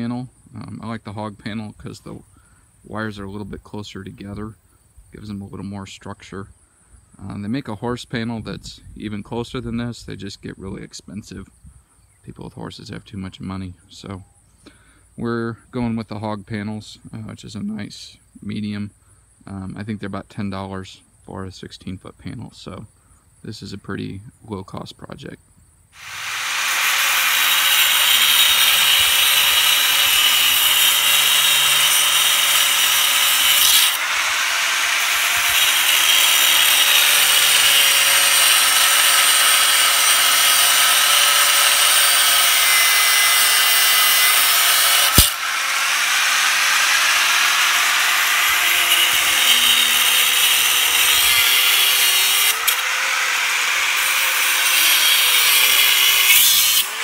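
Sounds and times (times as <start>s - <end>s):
angle grinder cutting wire: 26.0s - 57.0s
sharp crack: 45.0s - 45.6s.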